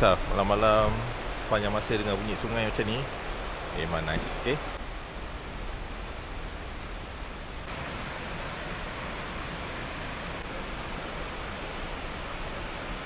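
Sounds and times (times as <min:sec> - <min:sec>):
river rushing over stones: 0:00.0 - 0:04.9, 0:05.9 - 0:13.0.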